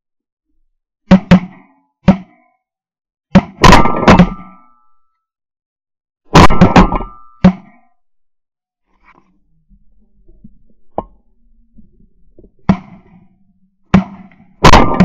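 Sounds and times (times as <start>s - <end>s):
shotgun blasts: 3.3s - 4.6s, 6.3s - 7.8s, 13.9s - 15.0s.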